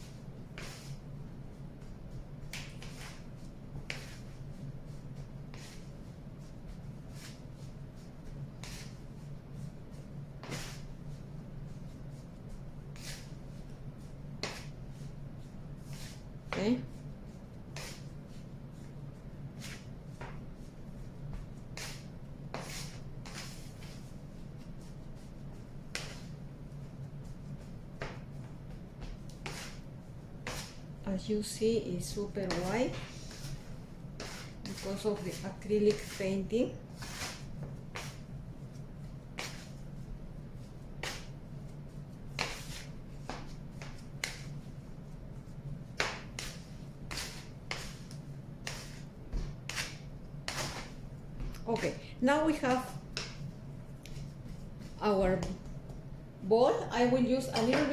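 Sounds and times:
hands kneading clay in a bowl: 0.0 - 9.1, 32.2 - 56.0
faint steady hum: 0.0 - 57.9
dough smacking against steel bowl: 45.9 - 46.5.

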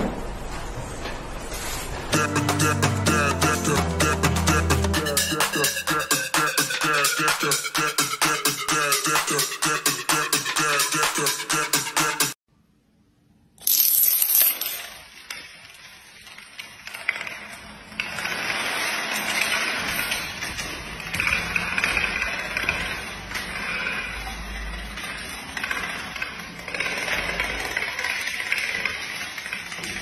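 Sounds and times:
domino cards clattering: 13.6 - 15.0.

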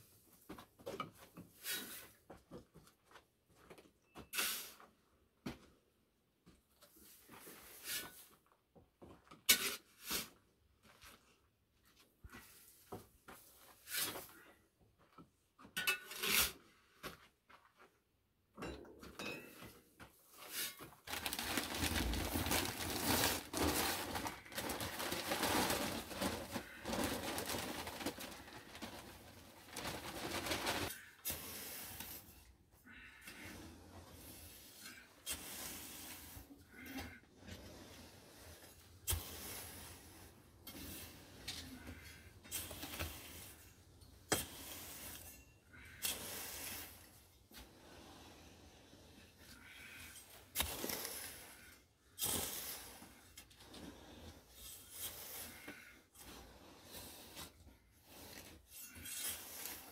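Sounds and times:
dense scraping: 20.5 - 31.0.

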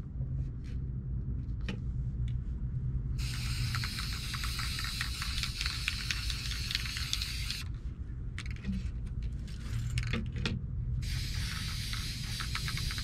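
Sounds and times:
spray paint can hissing: 3.2 - 7.6, 11.0 - 13.0.

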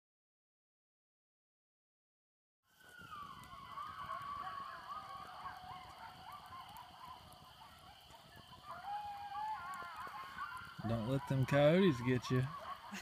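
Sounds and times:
coyotes howling and yipping: 2.7 - 13.0.

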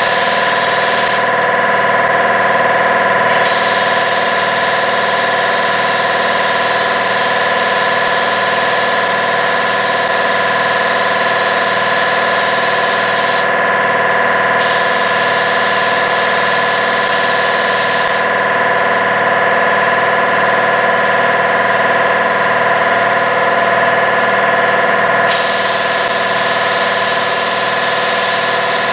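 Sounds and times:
spray gun air hiss: 0.0 - 1.3, 3.3 - 13.6, 14.6 - 18.3, 25.3 - 28.9.

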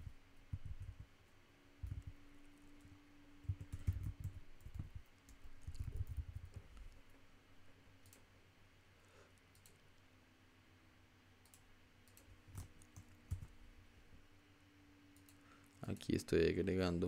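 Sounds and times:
typing on computer keyboard: 3.4 - 6.9, 11.4 - 13.5.

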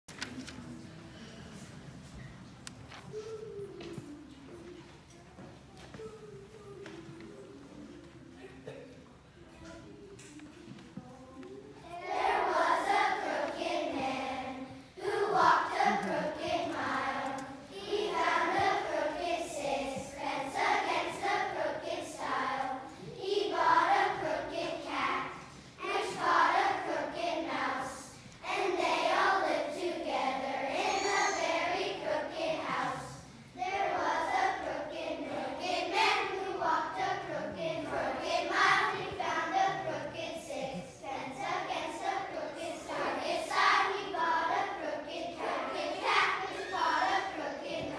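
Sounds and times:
children's choir singing: 9.6 - 47.9.

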